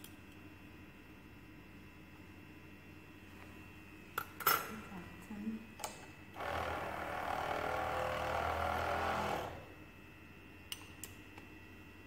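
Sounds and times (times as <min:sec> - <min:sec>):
vortex mixer whirring: 0:06.3 - 0:10.0.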